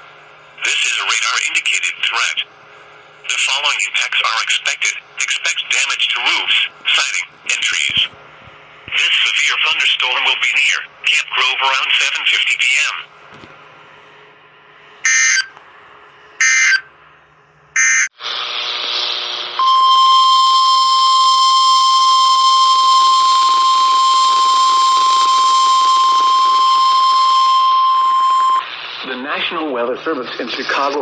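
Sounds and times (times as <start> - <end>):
radio hiss: 0.6 - 13.1, 18.2 - 19.6, 24.3 - 31.0
digital data squawks: 15.0 - 15.5, 16.4 - 16.9, 17.8 - 18.1, 19.6 - 28.7
steady warning alarm tone: 15.0 - 15.6, 16.4 - 16.9, 17.7 - 18.2, 19.6 - 28.7.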